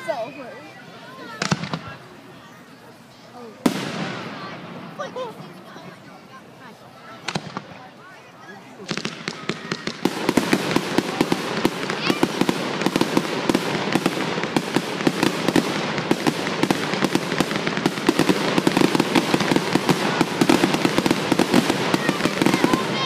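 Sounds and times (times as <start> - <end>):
firework shells bursting: 8.8 - 23.0.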